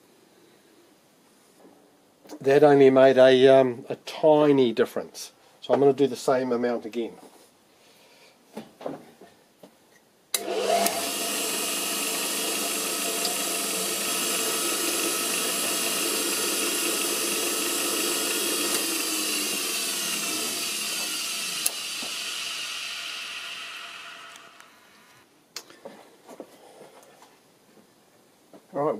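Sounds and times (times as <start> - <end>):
surface grinder whining: 10.4 - 25.3.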